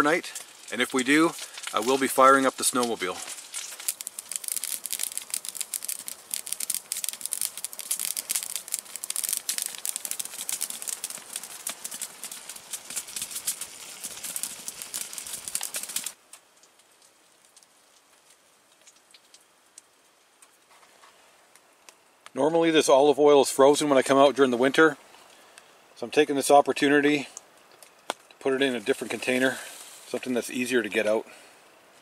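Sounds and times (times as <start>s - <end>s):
burgers sizzling in frying pan: 0.0s - 16.2s
wood fire crackling: 0.0s - 32.0s.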